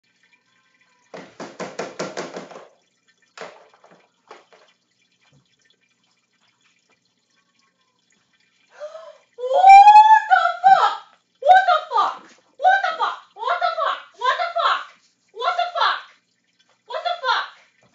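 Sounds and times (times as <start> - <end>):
woman crying out startled: 9.0 - 12.0.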